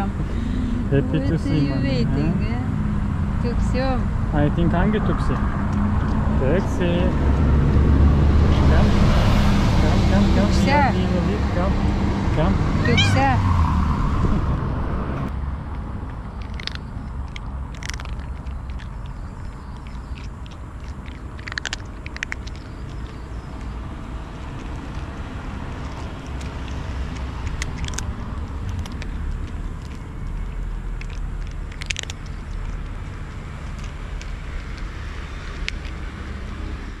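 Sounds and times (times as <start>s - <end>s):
steady low rumble: 0.0s - 37.0s
cat crunching dry kibble: 15.7s - 36.8s.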